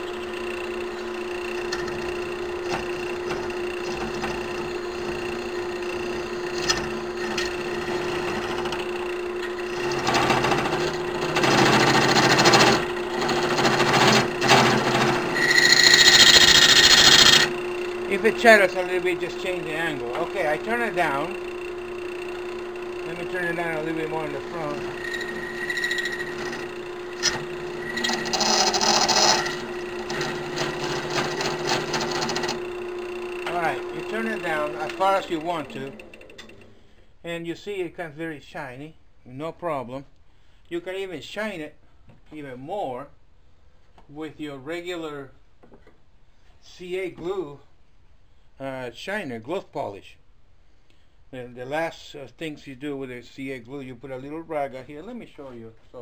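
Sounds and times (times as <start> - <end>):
cutter scraping metal tube: 0.0 - 32.8, 33.4 - 35.9
lathe motor running: 0.0 - 36.8
high-pitched squeal: 11.4 - 22.4, 23.0 - 32.7.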